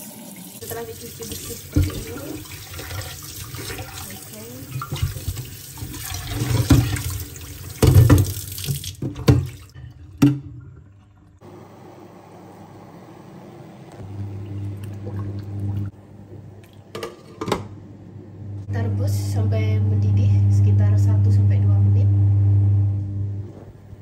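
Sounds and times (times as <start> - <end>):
kitchen tap running: 0.0 - 11.4.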